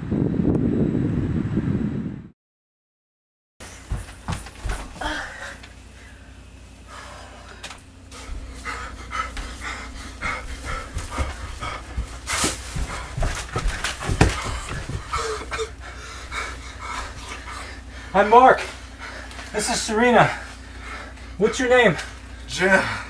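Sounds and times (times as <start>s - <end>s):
knocks and rustles of movement: 3.6s - 5.8s, 7.6s - 15.7s
person panting hard: 3.6s - 23.0s.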